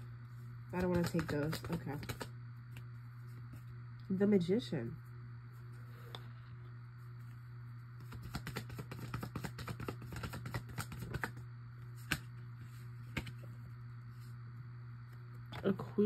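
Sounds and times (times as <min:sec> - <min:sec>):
cards being shuffled: 0:00.8 - 0:03.8, 0:08.0 - 0:13.4.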